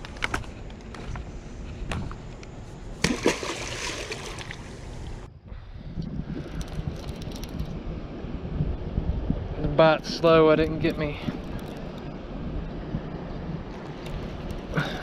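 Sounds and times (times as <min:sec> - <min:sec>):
loud splash in river: 0:03.0 - 0:04.8
water sloshing: 0:03.0 - 0:05.3.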